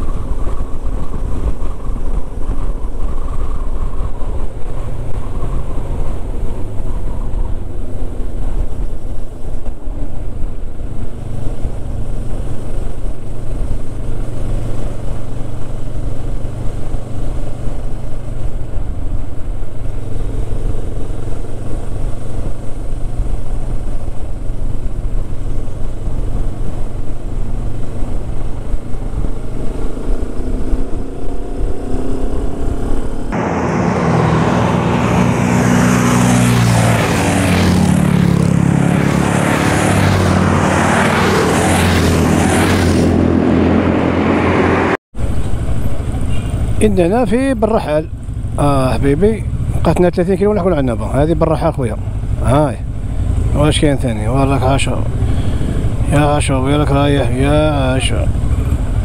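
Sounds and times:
wind noise on microphone: 0:00.0 - 0:46.8
motorcycle engine cruising: 0:00.0 - 0:59.0
motorcycles passing close by: 0:00.0 - 0:59.0.

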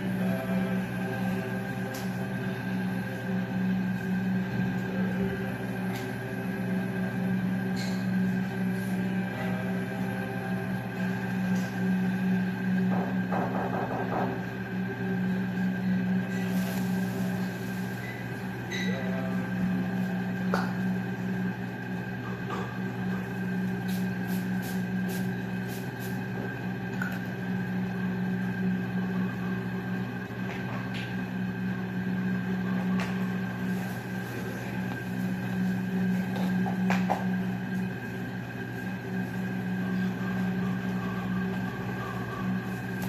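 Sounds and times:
steady low hum: 0:00.0 - 0:43.0
faint high whine: 0:27.7 - 0:43.0.

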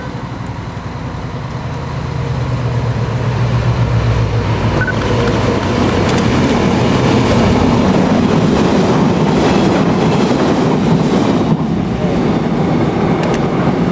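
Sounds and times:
steel wheels rolling on rails: 0:01.3 - 0:13.9
wheels clacking over rail joints: 0:04.4 - 0:11.8.

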